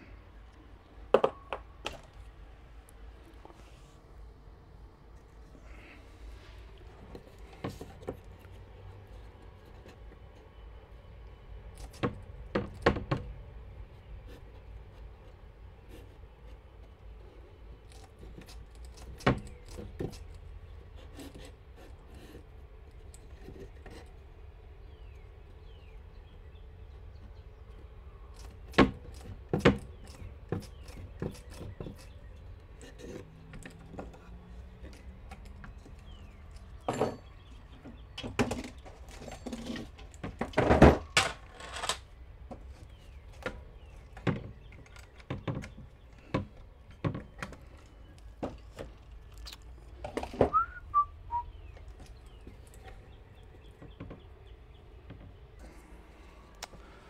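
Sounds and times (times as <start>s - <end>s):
metal bracket knocking on wood: 1.1s - 2.0s
short falling whistle: 50.5s - 51.5s.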